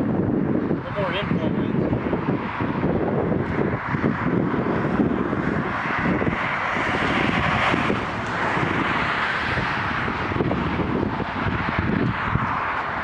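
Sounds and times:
gusty wind buffeting microphone: 0.0 - 13.0.

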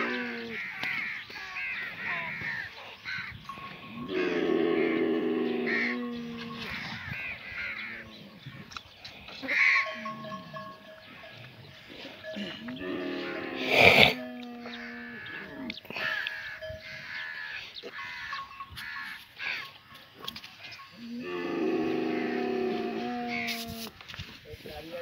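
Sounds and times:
camel low drawn-out call: 0.0 - 8.7, 11.9 - 18.4, 20.6 - 24.0
birds calling: 0.0 - 24.0.

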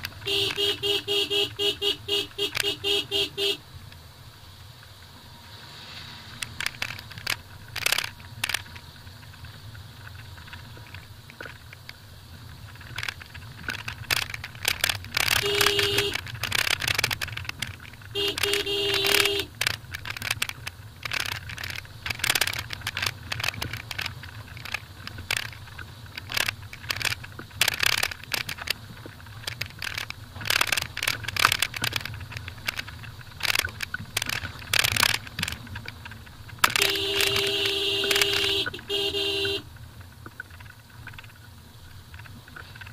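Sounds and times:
car engine and tyre rumble: 0.0 - 42.9
car horn: 0.2 - 3.6, 15.4 - 16.2, 18.1 - 19.6, 36.7 - 39.7
knocks and rattles: 6.4 - 42.9.

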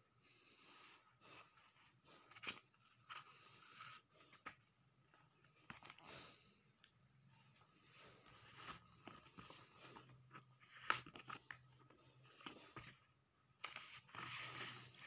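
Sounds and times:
paper rustling and pages flipping: 8.0 - 15.0.

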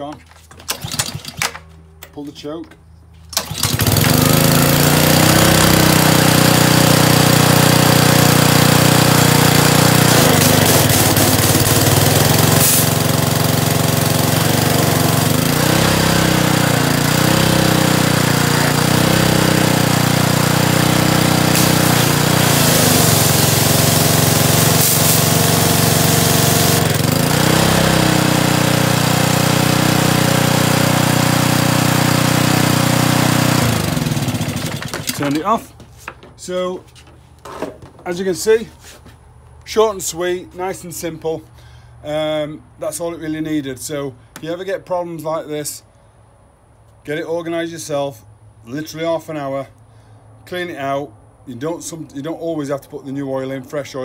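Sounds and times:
pressure washer engine running: 0.6 - 1.6, 3.3 - 35.7.

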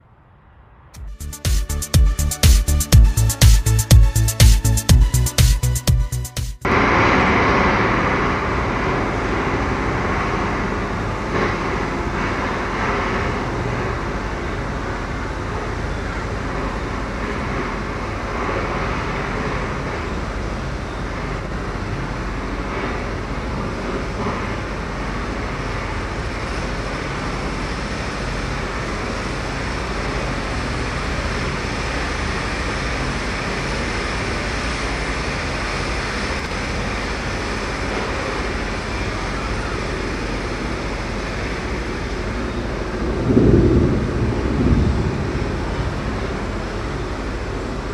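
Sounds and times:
distant city traffic: 0.0 - 5.8, 6.6 - 47.9
wind rushing: 43.0 - 46.7.

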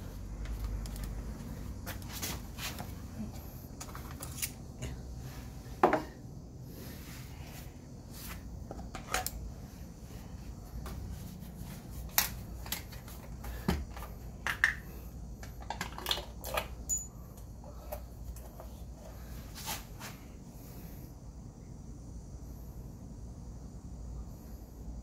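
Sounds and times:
low steady hum: 0.0 - 25.0
light clicks of parts handled: 0.4 - 2.1.

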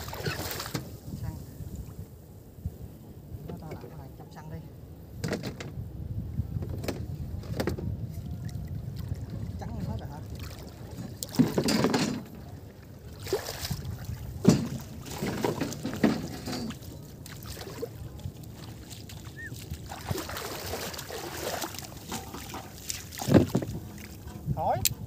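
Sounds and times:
feet wading through water: 0.0 - 0.8, 8.2 - 11.6, 12.4 - 24.4.

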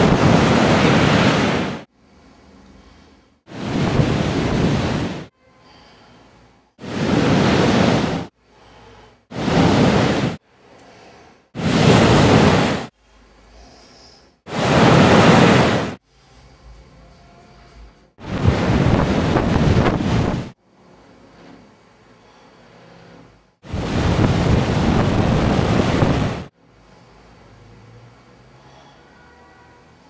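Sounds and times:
ocean surf breaking on shore: 0.0 - 1.9, 3.5 - 5.3, 6.8 - 8.3, 9.3 - 10.4, 11.6 - 12.9, 14.5 - 16.0, 18.2 - 20.6, 23.7 - 26.5.

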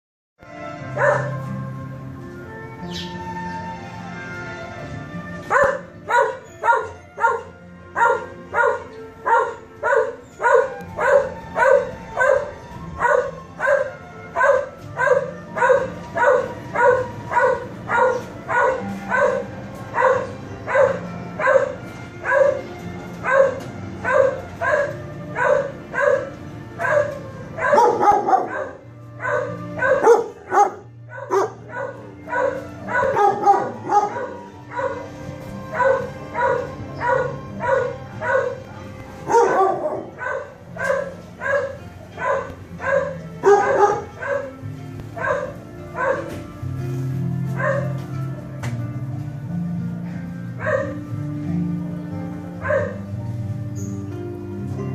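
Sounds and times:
several dogs barking: 0.8 - 1.7, 5.4 - 46.6, 47.4 - 48.1, 50.4 - 51.2, 52.4 - 53.4
dog barking rhythmically: 0.9 - 1.5, 5.4 - 46.5, 47.5 - 48.0, 50.5 - 51.1, 52.5 - 53.3.

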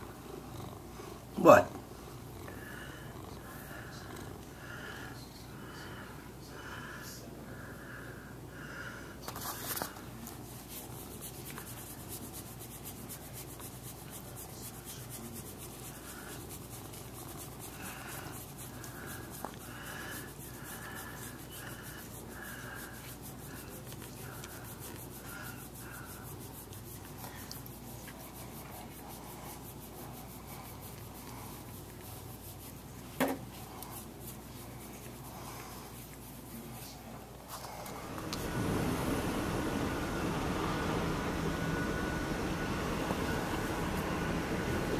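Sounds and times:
cat tongue licking fur: 10.4 - 37.1.

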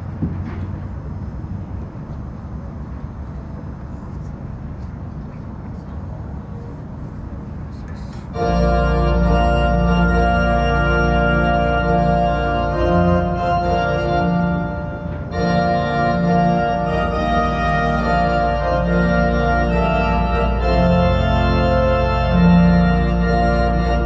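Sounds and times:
organ playing sustained chords: 8.3 - 24.0.

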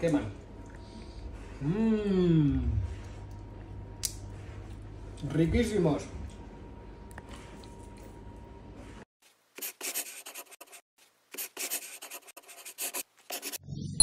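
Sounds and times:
pen scratching on paper: 9.6 - 13.6.

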